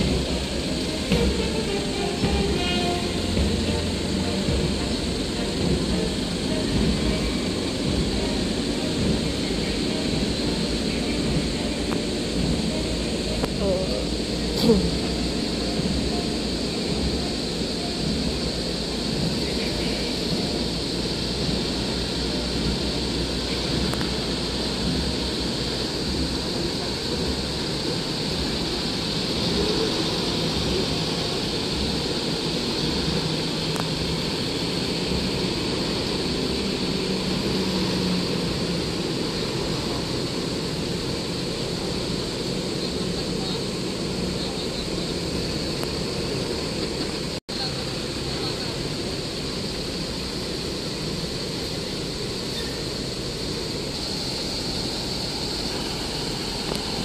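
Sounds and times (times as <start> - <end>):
heavy military trucks driving past: 0.0 - 57.0.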